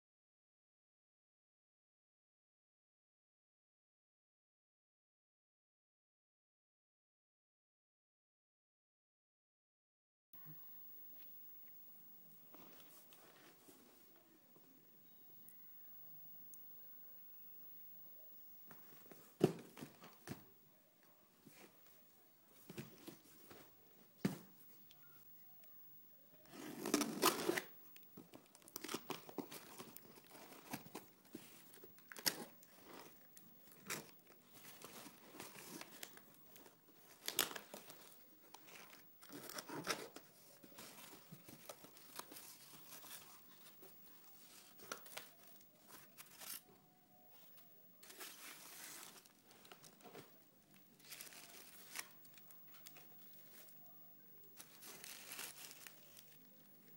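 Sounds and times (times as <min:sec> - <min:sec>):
plastic wrapping crinkling: 0:26.4 - 0:56.9
cardboard tearing: 0:26.5 - 0:27.7, 0:54.6 - 0:56.4.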